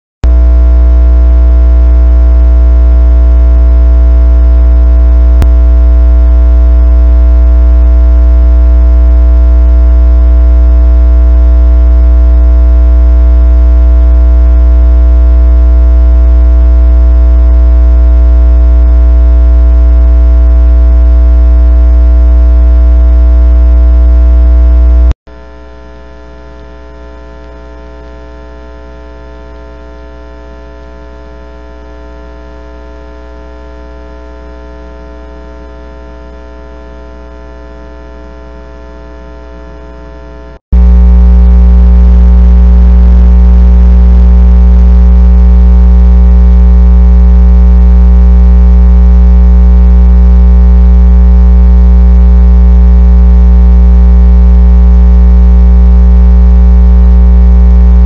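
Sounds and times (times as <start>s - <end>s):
electrical hum: 0.2s - 25.2s, 40.4s - 58.0s.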